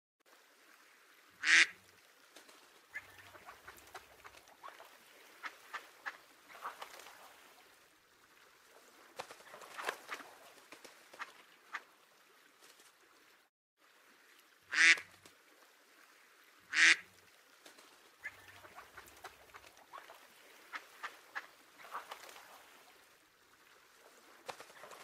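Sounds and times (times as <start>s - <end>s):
duck quacking: 1.4s - 1.7s, 14.7s - 15.0s, 16.7s - 17.0s.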